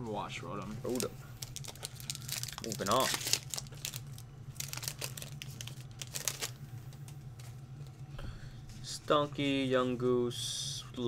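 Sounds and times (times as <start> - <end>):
steady low hum: 0.0 - 11.0
foil wrapper crinkling and tearing: 0.8 - 6.6.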